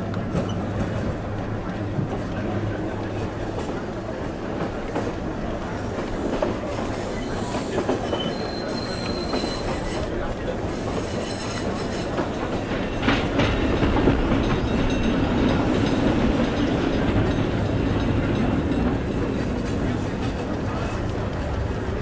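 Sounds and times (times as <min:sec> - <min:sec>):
tram wheels rumbling on rails: 0:00.0 - 0:22.0
thin wheel squeal: 0:08.0 - 0:10.1, 0:10.7 - 0:12.2.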